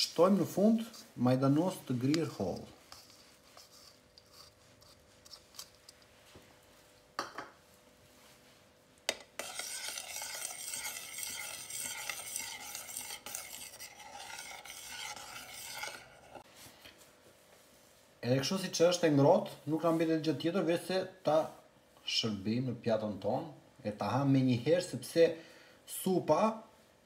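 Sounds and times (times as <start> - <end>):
spoon stirring in a metal pot: 1.7 - 6.1, 9.1 - 16.4.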